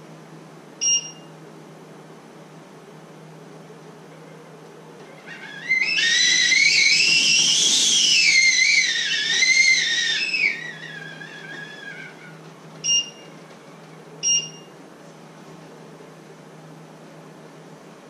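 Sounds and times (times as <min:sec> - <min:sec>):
short electronic beeps: 0:00.8 - 0:01.3, 0:12.8 - 0:13.2, 0:14.2 - 0:14.7
kettle whistling: 0:05.4 - 0:12.2.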